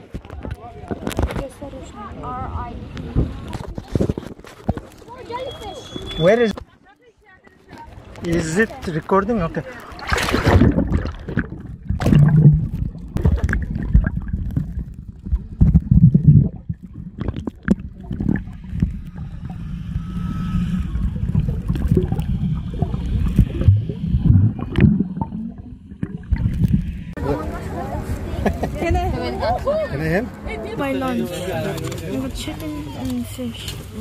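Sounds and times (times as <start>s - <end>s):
bubbling gurgles: 9.8s - 27.2s
underwater low rumble: 9.9s - 28.4s.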